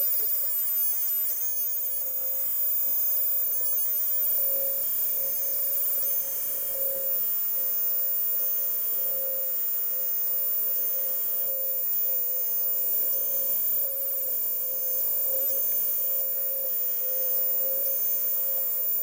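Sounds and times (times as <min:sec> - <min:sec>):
router spindle whine: 0:00.0 - 0:19.0.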